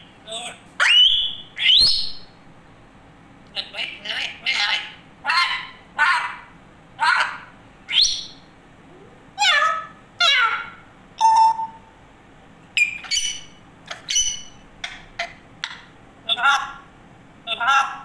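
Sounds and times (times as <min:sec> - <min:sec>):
parrot sharp chirps: 0:00.8 - 0:02.3, 0:07.1 - 0:08.5, 0:12.8 - 0:15.8
parrot whistles and squawks: 0:00.8 - 0:02.3, 0:07.0 - 0:08.5, 0:09.4 - 0:11.9, 0:12.8 - 0:15.8.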